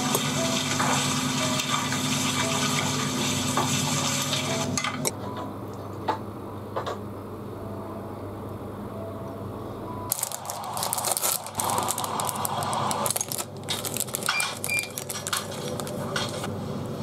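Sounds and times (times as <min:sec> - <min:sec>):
plastic wrapper crinkling: 0:10.1 - 0:16.5.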